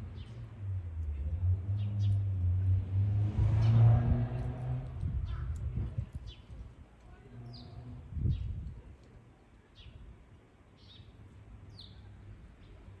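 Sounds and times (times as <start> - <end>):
sparrows chirping: 0.0 - 0.5, 1.7 - 2.4, 5.2 - 6.6, 7.4 - 8.6, 9.6 - 10.1, 10.7 - 12.9.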